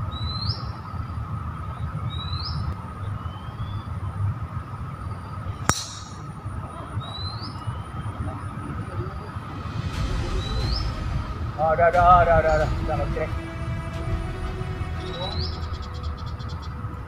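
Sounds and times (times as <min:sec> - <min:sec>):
golf driver striking ball: 0:05.7 - 0:06.6.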